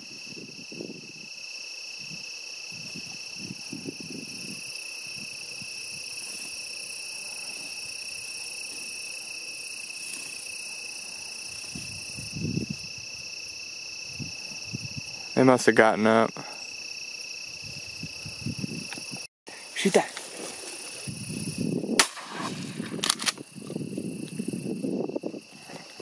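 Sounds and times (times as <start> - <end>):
crickets trilling: 0.0 - 26.0
footsteps through dry weeds: 20.2 - 21.3.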